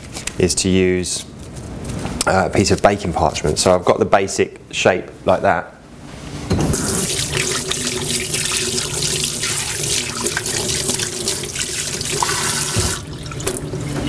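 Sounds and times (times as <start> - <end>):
water splashing over hands: 7.0 - 13.6
tap water running into sink: 7.0 - 13.8.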